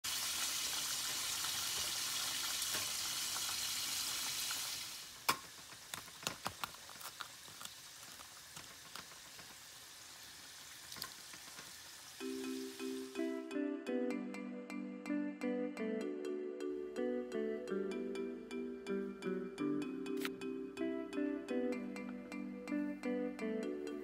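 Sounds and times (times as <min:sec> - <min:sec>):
frying sizzle: 0:00.0 - 0:13.4
crackles of crisp crust: 0:05.0 - 0:12.2
music: 0:12.2 - 0:24.0.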